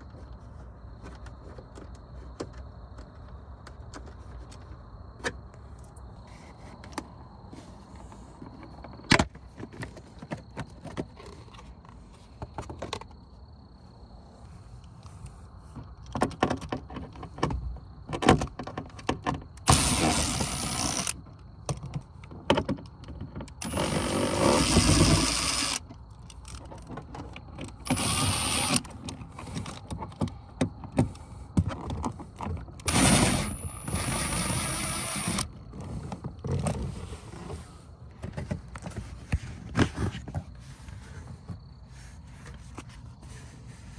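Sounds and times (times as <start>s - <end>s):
power tool motor whining: 19.7s - 21.2s, 23.6s - 25.8s, 27.8s - 28.9s, 32.8s - 35.5s.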